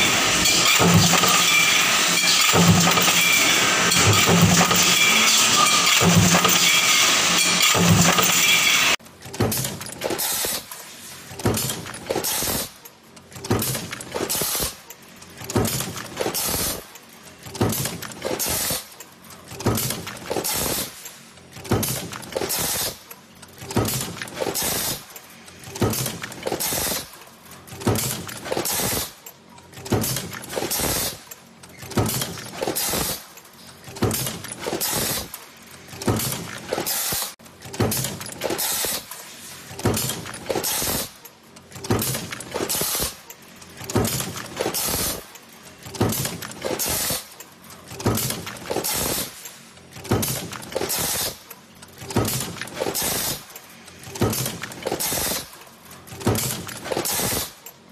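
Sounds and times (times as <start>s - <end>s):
stamping press clanking: 0.0s - 10.6s, 11.3s - 12.7s, 13.3s - 14.7s, 17.4s - 18.8s, 19.5s - 20.9s, 21.5s - 23.0s, 25.6s - 27.1s, 27.7s - 29.1s, 29.7s - 33.2s, 33.8s - 39.0s, 39.7s - 41.1s, 41.7s - 43.2s, 43.8s - 45.2s, 45.8s - 47.2s, 47.8s - 49.3s, 49.9s - 51.4s, 52.0s - 53.4s, 54.0s - 55.4s, 56.1s - 57.5s.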